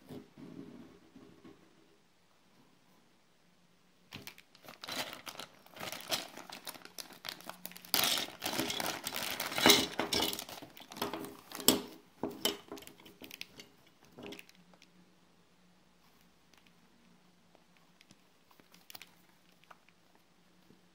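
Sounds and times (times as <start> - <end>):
plastic bag crinkling: 4.1 - 11.9, 18.0 - 20.0.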